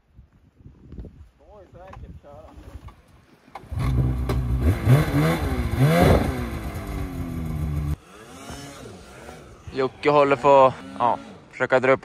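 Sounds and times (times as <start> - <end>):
snowmobile engine revving: 3.6 - 12.0.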